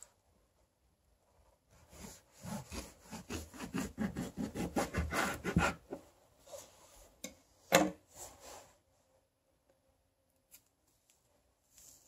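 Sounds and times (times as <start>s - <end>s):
knife cutting on wood: 1.9s - 6.0s
faint handling of fruit: 10.4s - 12.0s.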